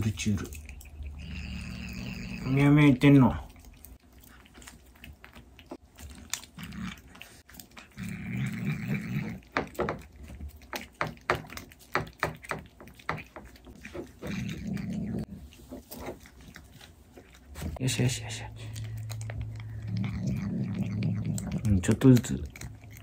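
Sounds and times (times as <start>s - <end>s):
kitten growly eating murmur: 0.0s - 23.0s.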